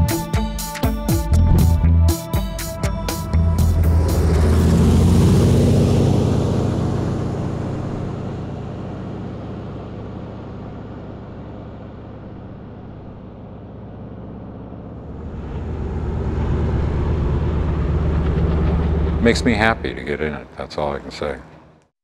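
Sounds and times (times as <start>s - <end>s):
propeller plane engine: 0.0s - 21.9s.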